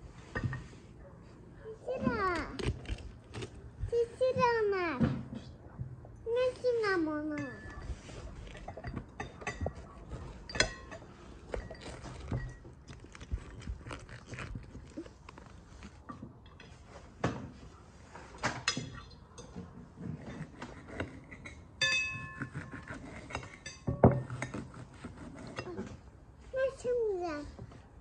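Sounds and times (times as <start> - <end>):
knife carving meat: 2.2 - 3.7, 11.4 - 16.0, 22.2 - 25.9
cutlery clinking on china: 7.4 - 12.7, 20.3 - 24.7.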